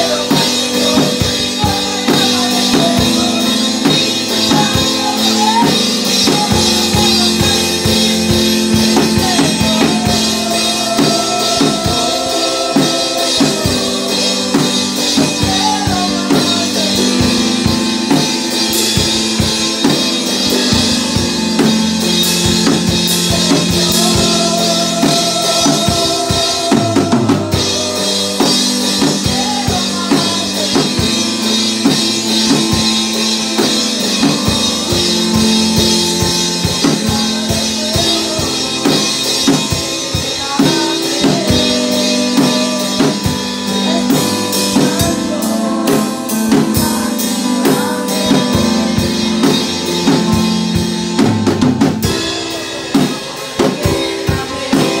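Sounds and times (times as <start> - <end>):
boy singing into a microphone: 0.0 - 19.1, 22.6 - 50.6, 52.1 - 55.0
backing music: 0.0 - 55.0
drum kit steady beat: 0.0 - 55.0.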